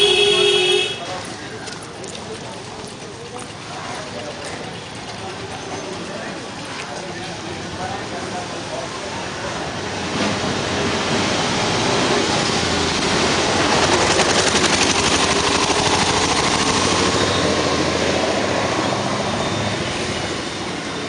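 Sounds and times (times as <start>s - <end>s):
small vehicle engine running: 10.3s - 21.0s.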